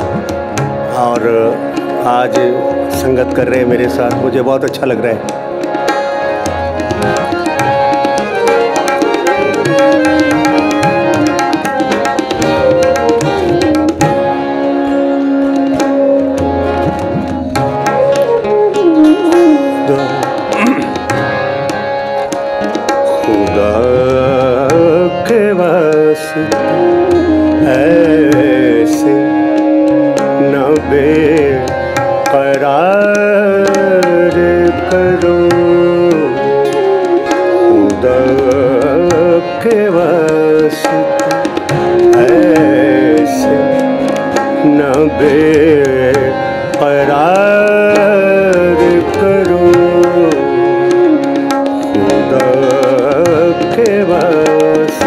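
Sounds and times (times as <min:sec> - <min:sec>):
harmonium chords: 0:00.0 - 0:55.0
tabla rhythm: 0:00.0 - 0:55.0
man singing: 0:00.7 - 0:05.3, 0:18.9 - 0:21.1, 0:23.0 - 0:55.0.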